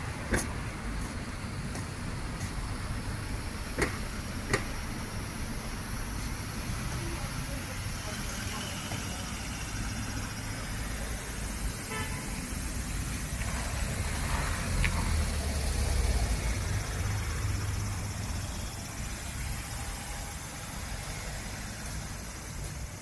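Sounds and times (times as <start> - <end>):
road traffic rumble: 0.0 - 23.0
steady hiss: 2.7 - 23.0
vehicle passing: 8.5 - 23.0.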